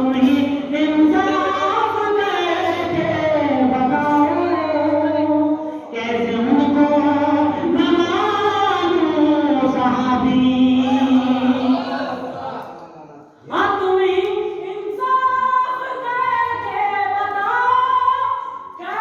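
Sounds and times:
person singing devotional verse: 0.0 - 12.7.

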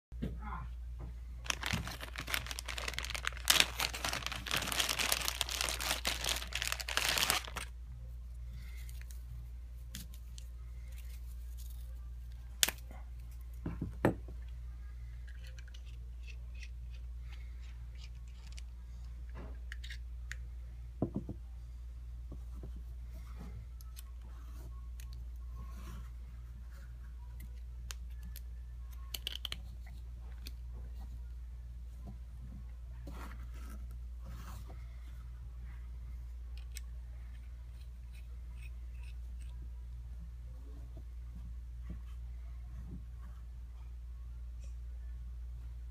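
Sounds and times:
plastic bag crinkling: 1.4 - 7.7.

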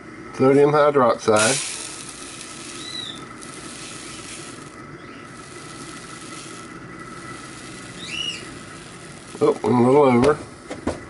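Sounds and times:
granules pouring into bowl: 1.3 - 9.9.

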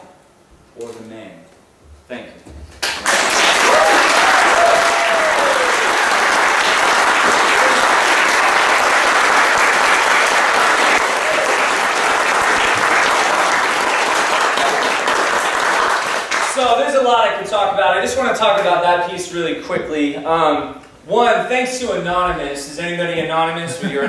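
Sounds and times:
audience applauding: 2.8 - 17.2
person cheering: 3.6 - 6.2, 11.0 - 11.7.

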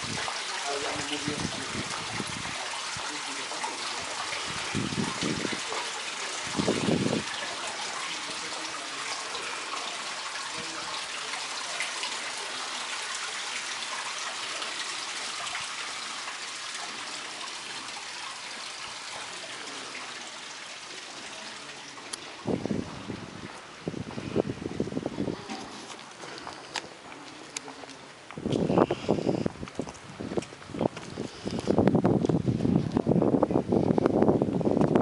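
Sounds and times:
water running and trickling: 0.0 - 35.0.

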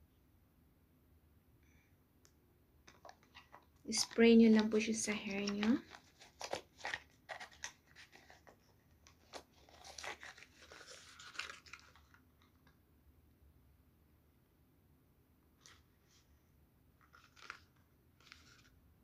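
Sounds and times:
packaging crinkling and rustling: 2.9 - 12.7, 17.0 - 18.8.

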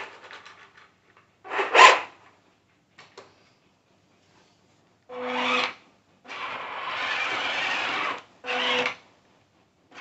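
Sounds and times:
toy tank motors whirring: 6.3 - 9.0.

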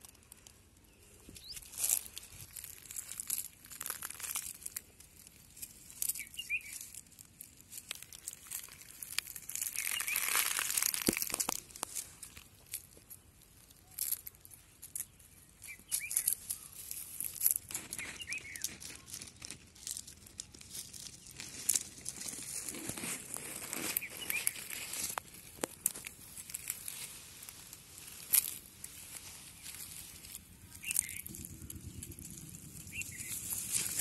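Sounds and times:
leaves and twigs crackling underfoot: 0.0 - 34.0
bird chirping: 5.9 - 7.0, 8.3 - 11.0, 13.7 - 19.4, 23.8 - 25.1, 29.2 - 34.0.

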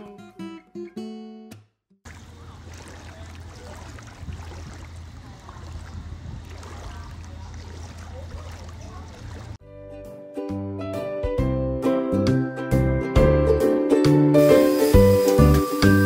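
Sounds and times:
music: 0.0 - 1.8, 9.6 - 16.0
pool water trickling: 2.1 - 9.6, 14.4 - 16.0
steady low hum: 2.1 - 9.6.

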